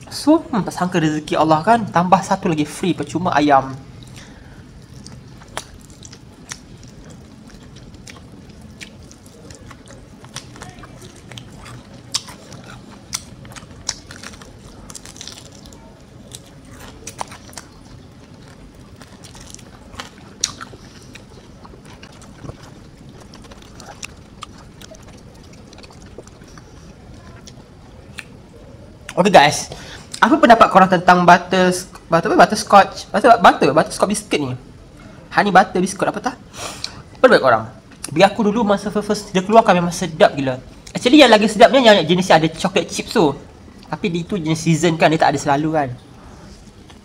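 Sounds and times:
low steady hum: 0.0s - 47.0s
chewing crispy chicken crunches: 4.0s - 28.4s.

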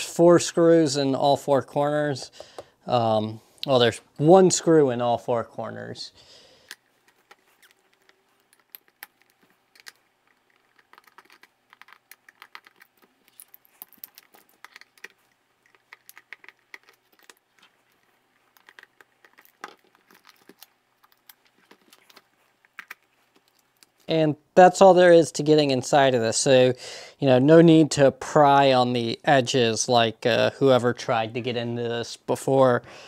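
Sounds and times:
labels peeling: 6.6s - 24.1s.

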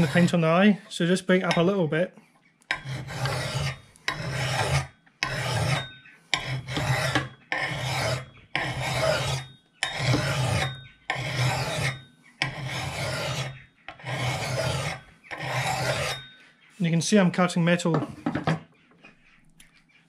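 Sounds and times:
file rasping on steel: 0.0s - 0.5s, 2.7s - 16.4s.

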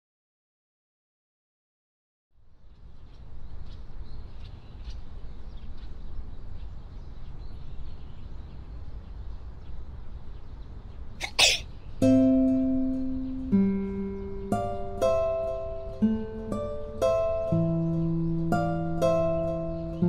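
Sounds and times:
low background noise: 2.4s - 20.0s
person sneezing: 11.2s - 11.6s
plucked string notes: 12.0s - 20.0s.

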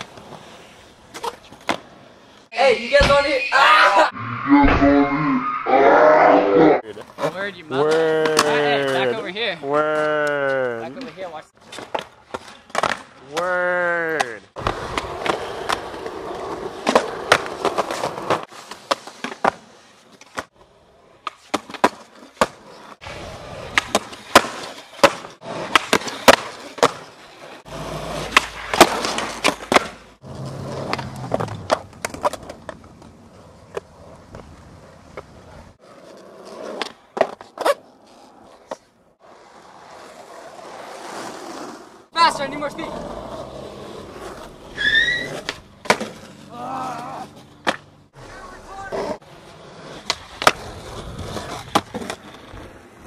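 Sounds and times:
skateboard wheels rolling on concrete: 0.0s - 4.1s, 6.2s - 53.0s
skateboard scraping concrete ledge: 21.2s - 53.0s.

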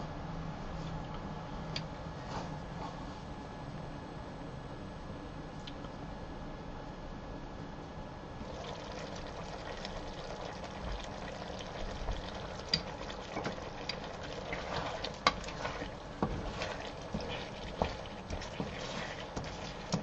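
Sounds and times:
wooden spoon scraping a pan: 11.7s - 20.0s.

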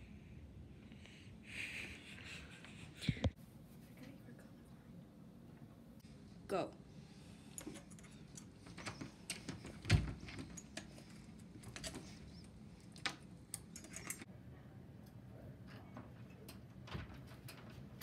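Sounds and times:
metal clicks and scraping in lock: 13.0s - 14.3s.

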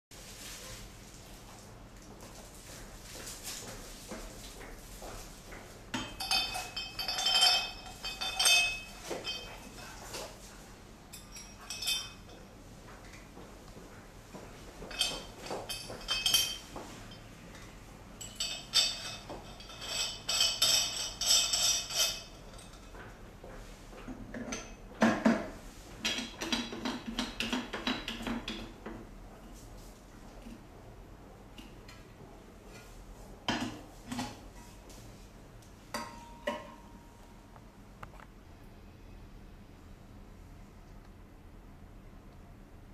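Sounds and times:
metal parts clinking and scraping: 6.2s - 9.5s, 18.2s - 22.8s.

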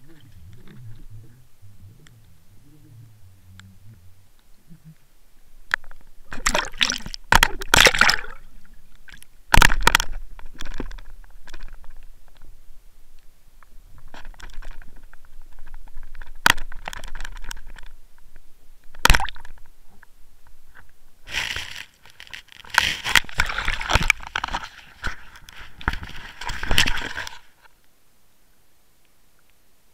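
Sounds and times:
scraping underwater: 0.0s - 5.0s, 5.8s - 8.8s, 21.3s - 27.6s
water splashing and gurgling: 5.8s - 10.0s.

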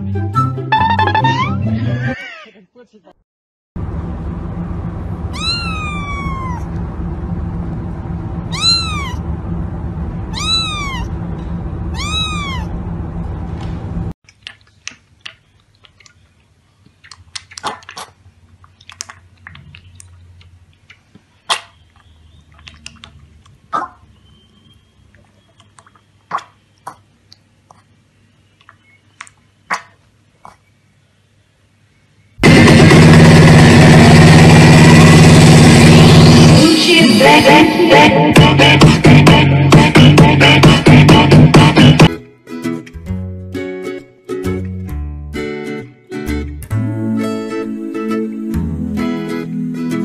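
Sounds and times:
kitten meowing: 5.3s - 6.7s, 8.5s - 9.2s, 10.3s - 11.1s, 11.9s - 12.8s
piglet lapping milk from metal bowl: 14.3s - 24.0s, 25.1s - 27.9s.

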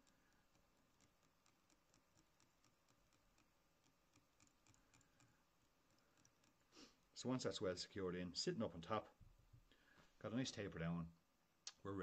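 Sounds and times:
faint small ticks: 0.0s - 6.7s.

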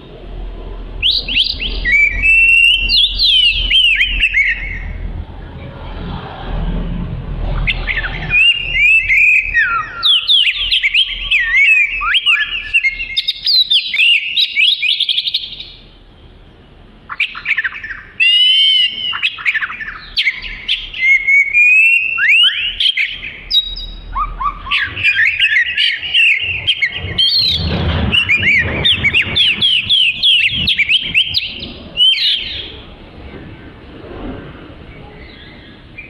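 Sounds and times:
bird singing whistles and chirps: 1.0s - 5.0s, 7.5s - 15.9s, 17.1s - 32.8s.

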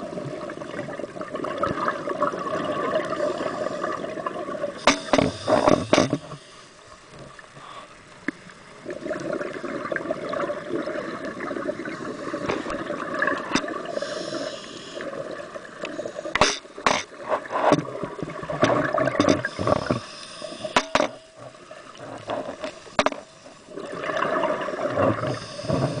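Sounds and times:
regulator hissing inhale: 3.0s - 4.1s, 4.8s - 6.9s, 7.6s - 8.0s, 11.9s - 12.8s, 13.8s - 15.2s, 19.4s - 21.0s, 25.3s - 26.0s
regulator bubbling exhale: 23.7s - 26.0s.

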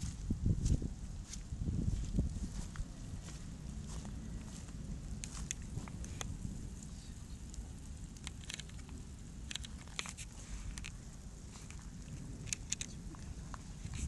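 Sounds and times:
steady low rumble: 0.0s - 14.0s
hailstones pelting grass: 3.2s - 14.0s
sharp clicks of hailstones: 5.1s - 14.0s.

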